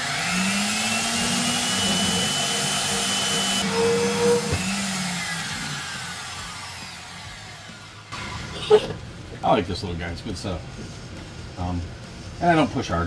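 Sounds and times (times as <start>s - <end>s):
bandsaw cutting metal: 0.0s - 8.8s.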